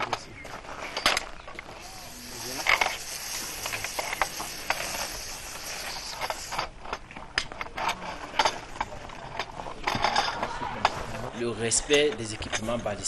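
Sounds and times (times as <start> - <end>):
metal gun parts clicking and clanking: 0.0 - 1.7, 6.3 - 11.0
lubricant spray hissing: 1.6 - 6.7.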